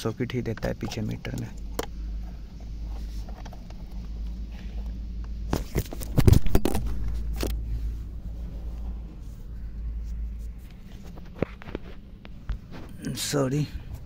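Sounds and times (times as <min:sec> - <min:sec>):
low steady hum: 0:00.0 - 0:14.0
rubbing and handling: 0:02.0 - 0:13.0.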